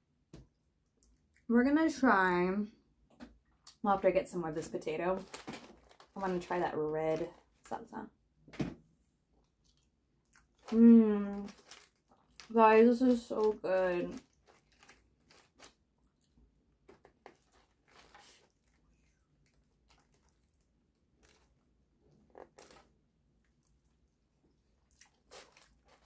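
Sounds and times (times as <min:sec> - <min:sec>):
quiet chewing: 0:09.3 - 0:12.5, 0:13.1 - 0:26.0.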